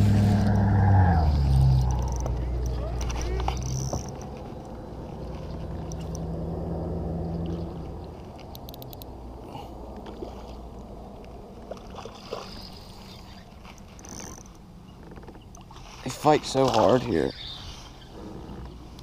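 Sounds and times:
low rumble: 0:00.0 - 0:11.6
water lapping against kayak hull: 0:10.0 - 0:17.1.

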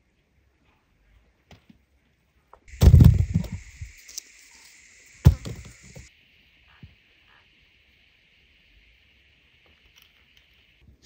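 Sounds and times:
thumps of potatoes: 0:02.7 - 0:03.7, 0:05.2 - 0:06.0.

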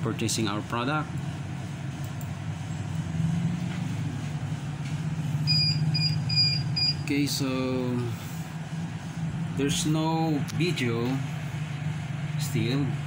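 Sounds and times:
short high-pitched beeps: 0:05.4 - 0:07.1.

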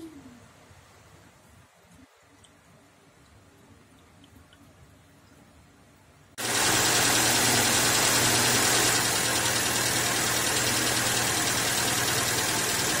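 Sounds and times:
car engine idling: 0:06.4 - 0:13.0
radiator hiss: 0:06.4 - 0:13.0.

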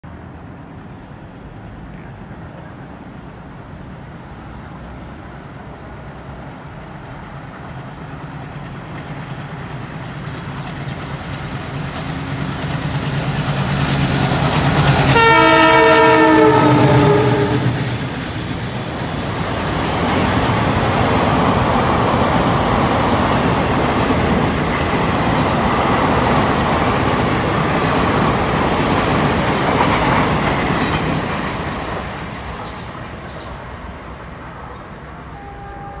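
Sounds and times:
diesel locomotive approaching: 0:00.0 - 0:36.0
train wheels clattering on rails: 0:08.3 - 0:34.3
multi-tone train horn: 0:14.8 - 0:17.8, 0:35.1 - 0:36.0.

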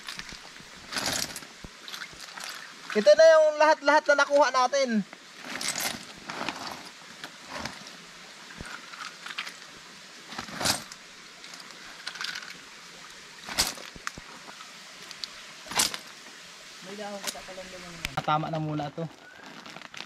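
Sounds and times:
faint stream trickle: 0:00.0 - 0:20.0
plastic bag crinkling: 0:19.1 - 0:20.0.

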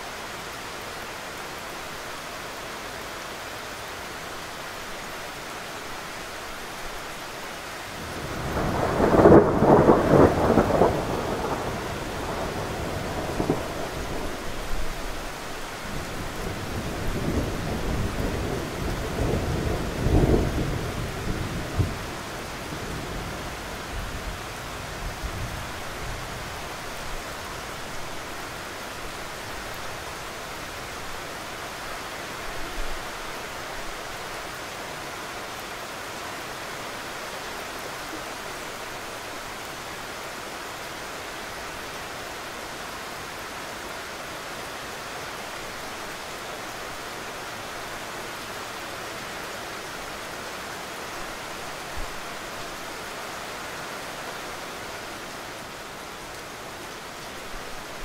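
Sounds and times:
steady rain: 0:00.0 - 0:58.0
thunder rumbling: 0:08.1 - 0:14.7.

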